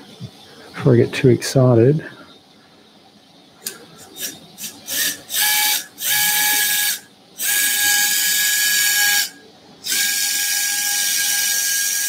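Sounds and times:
power wire driver whining: 3.6 - 12.0.

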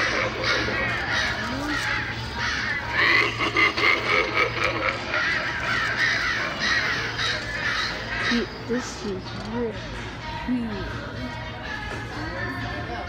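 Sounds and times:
harsh wavering animal calls: 0.0 - 9.0.

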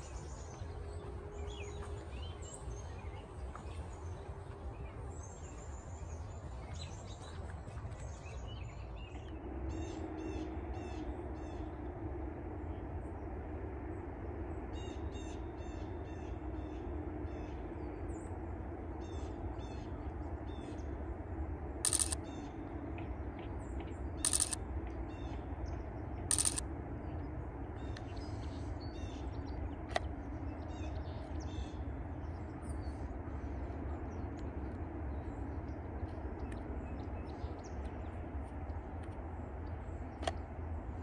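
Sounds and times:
low background hum: 0.0 - 41.0
small birds chirping: 21.9 - 22.4, 24.2 - 26.6.

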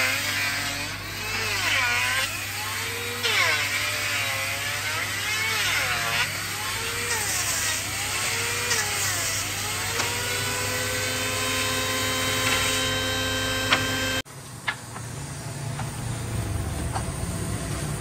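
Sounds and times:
circular saw cutting wood: 0.0 - 14.2.

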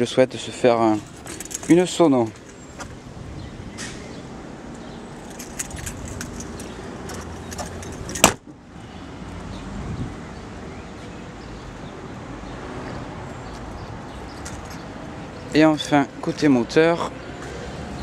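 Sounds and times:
light clicks and rattles: 1.0 - 2.7, 5.2 - 8.3
car tailgate slamming shut: 8.1 - 8.5.

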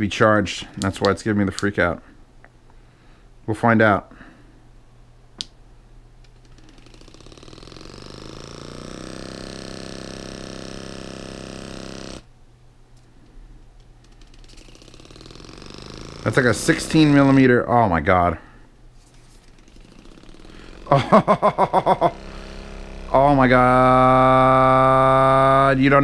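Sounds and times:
massage gun hammering: 6.3 - 12.3, 14.1 - 17.4, 19.4 - 25.6.

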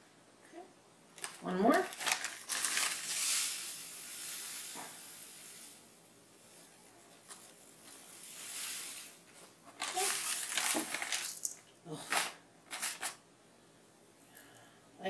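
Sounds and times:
breadcrumbs pouring into a cup: 1.9 - 6.7, 7.4 - 13.2.

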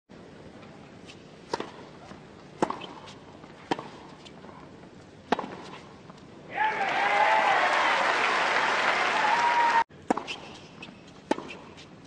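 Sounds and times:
tennis ball struck by rackets: 1.5 - 4.2, 5.2 - 5.8, 10.0 - 10.6, 11.2 - 11.8.

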